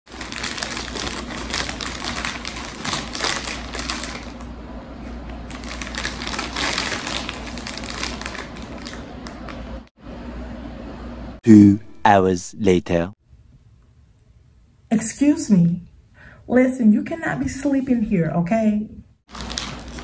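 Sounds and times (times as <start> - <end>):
chip bag rustling and crackling: 0.1 - 4.4, 5.5 - 9.5, 19.3 - 20.0.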